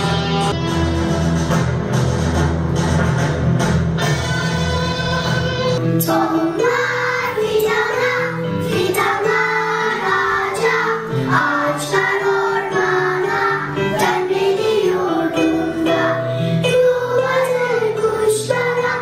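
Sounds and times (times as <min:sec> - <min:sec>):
backing music: 0:00.0 - 0:19.0
children singing together: 0:05.2 - 0:19.0.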